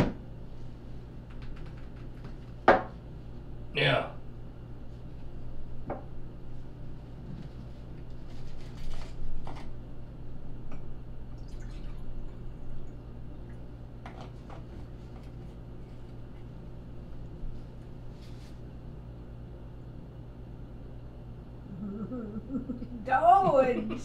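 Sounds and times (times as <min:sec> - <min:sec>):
low hum: 0:09.7 - 0:14.0, 0:14.8 - 0:24.0.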